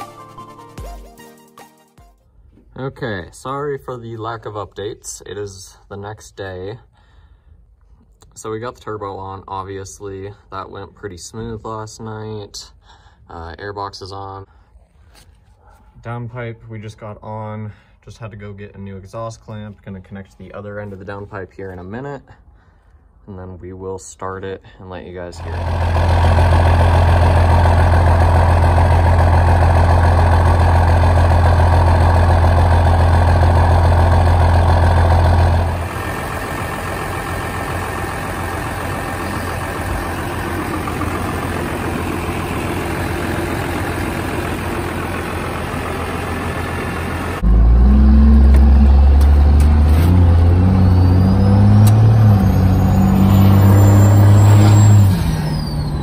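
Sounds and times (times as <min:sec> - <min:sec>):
diesel truck engine running: 0:25.4 - 0:56.0
turbo whistling: 0:47.5 - 0:56.0.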